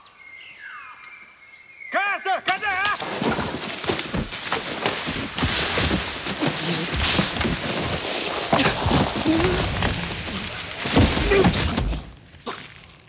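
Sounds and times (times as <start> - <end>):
rustling and snapping foliage: 2.5 - 13.0
body thudding on ground: 2.8 - 12.9.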